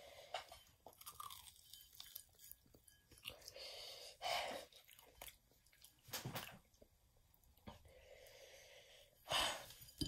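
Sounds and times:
crunchy chewing of fried chicken: 0.9 - 3.6.

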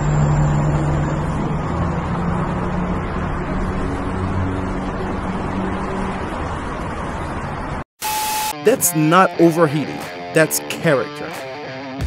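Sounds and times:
truck diesel engine passing: 0.0 - 7.8.

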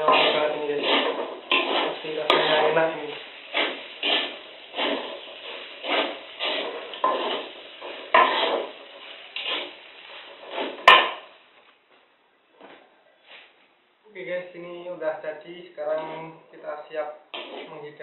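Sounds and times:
metal spatula scraping a wok: 0.0 - 11.3, 17.4 - 18.0
sharp clank of metal on wok: 8.1 - 8.7, 10.5 - 11.3.

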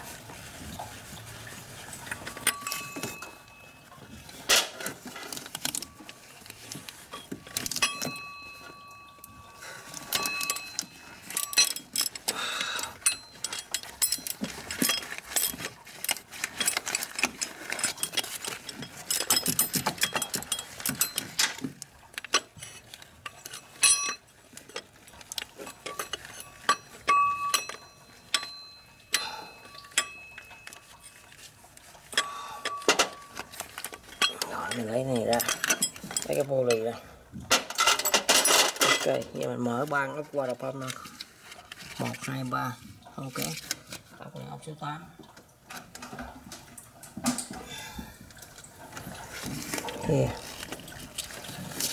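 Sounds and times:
metal tools clinking: 0.8 - 42.3.

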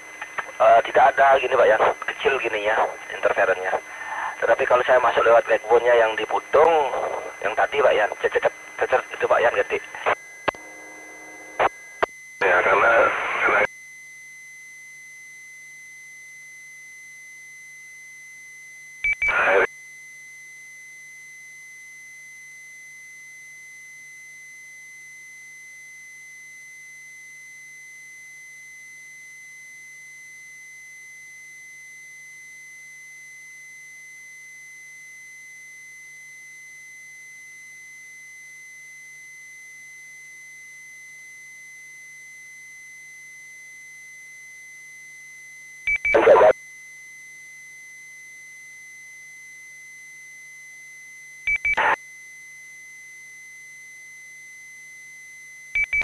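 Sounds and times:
loud radio burst: 0.4 - 10.2, 12.4 - 13.7, 19.2 - 19.7, 46.1 - 46.6, 51.8 - 52.0
high beep-like radio tone: 11.1 - 13.7, 19.1 - 19.7, 45.9 - 46.6, 51.5 - 52.0.

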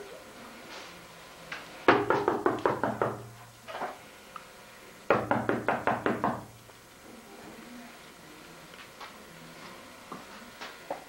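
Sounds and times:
rapid knocking on window pane: 1.9 - 3.4, 5.1 - 6.5.

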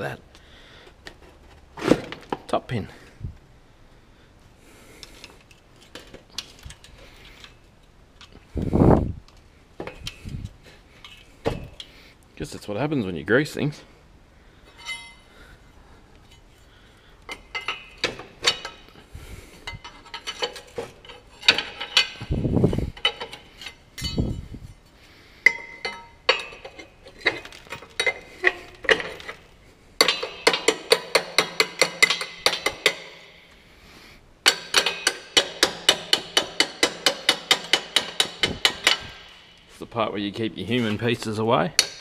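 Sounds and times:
metal clinks and taps: 14.7 - 15.3, 17.2 - 19.0, 23.0 - 24.5, 25.4 - 29.4, 30.0 - 33.2
hammer striking metal pin: 30.0 - 33.2, 34.4 - 39.7.

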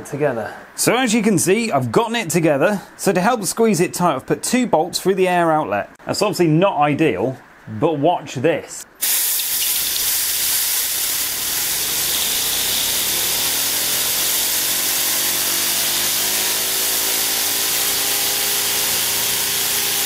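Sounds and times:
compressed air hissing: 9.0 - 20.0
turbine whine rising in pitch: 10.9 - 20.0.

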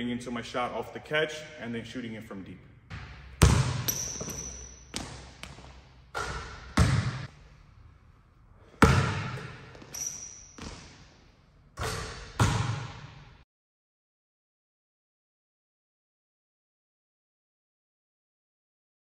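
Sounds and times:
basketball bouncing on hardwood floor: 2.9 - 7.3, 8.8 - 10.0, 10.6 - 11.0, 11.8 - 13.2
short high squeaks: 3.9 - 4.9, 9.8 - 10.6.

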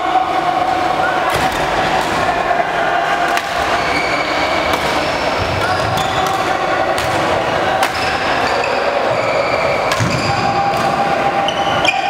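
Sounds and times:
rackets hitting shuttlecocks: 3.3 - 3.8, 4.7 - 8.3, 9.9 - 11.0.

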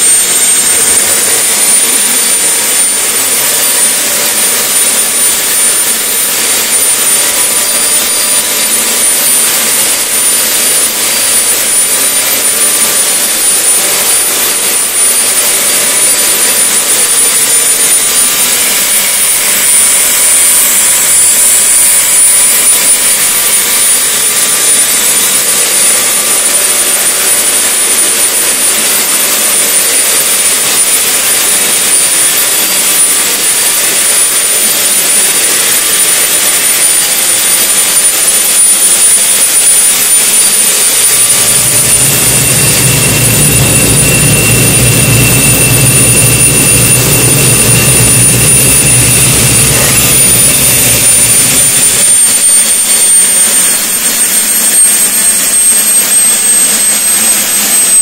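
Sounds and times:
turbine engine whine: 0.0 - 58.0
rush of air and exhaust: 40.5 - 52.4.

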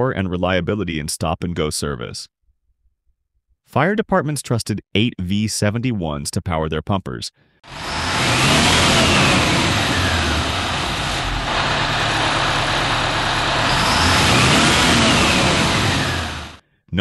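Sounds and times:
diesel engine revving: 7.7 - 16.6
high engine whine: 7.7 - 16.6.

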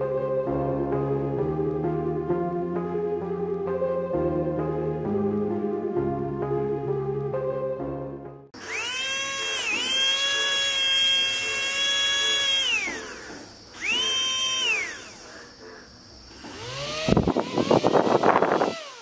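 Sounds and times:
propeller fluttery buzz: 8.6 - 19.0
small motor whining: 8.6 - 19.0.

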